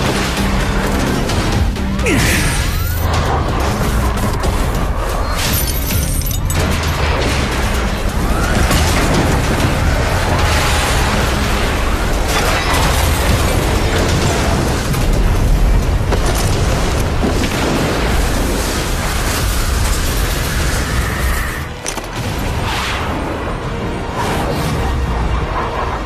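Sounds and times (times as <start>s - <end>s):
explosions rumbling: 6.7s - 21.5s.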